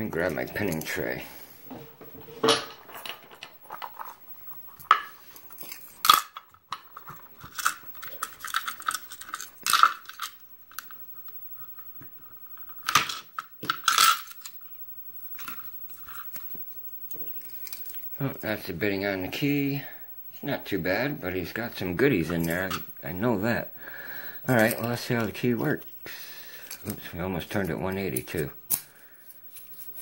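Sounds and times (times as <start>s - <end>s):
metal lock parts clicking and clattering: 2.4s - 5.1s.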